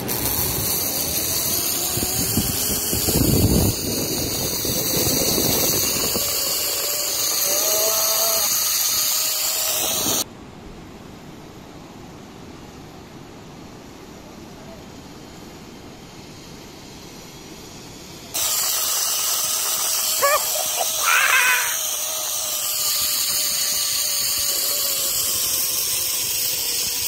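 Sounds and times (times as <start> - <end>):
wind rushing over microphone: 0.0 - 7.5
zip line trolley whirring on cable: 0.0 - 10.3, 14.4 - 27.0
steady hiss: 0.0 - 27.0.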